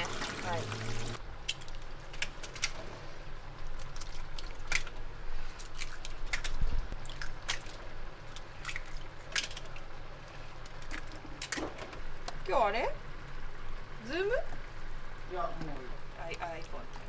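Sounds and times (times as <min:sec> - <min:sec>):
wet squishing: 0:01.4 - 0:11.6.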